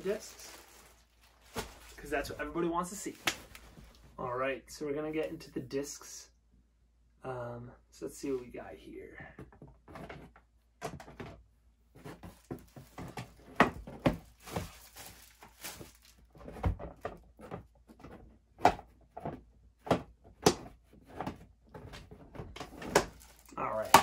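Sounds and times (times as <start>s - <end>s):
rustling: 0.0s - 4.2s, 11.9s - 18.2s, 21.1s - 24.0s
plastic discs knocking: 23.8s - 24.0s.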